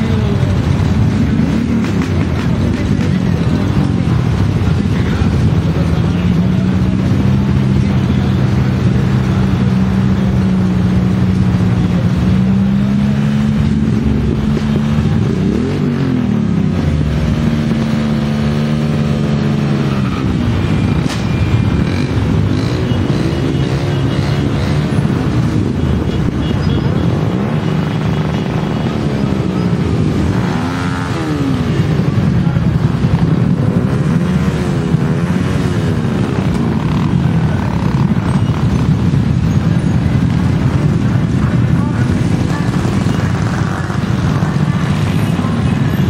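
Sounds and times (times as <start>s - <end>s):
engines revving: 0.0s - 46.0s
motorcycle engines passing: 0.0s - 46.0s.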